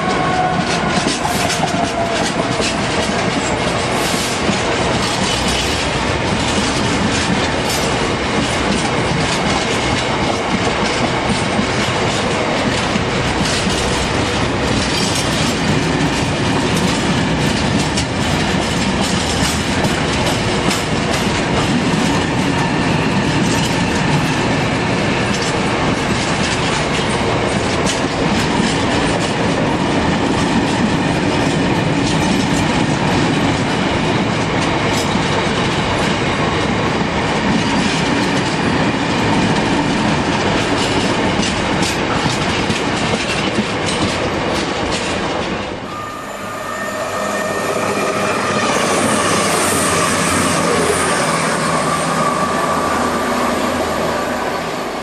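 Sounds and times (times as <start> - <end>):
freight train wheels clicking: 0.0 - 55.0
passenger train passing whine: 0.0 - 55.0
train wheels squealing: 45.8 - 55.0.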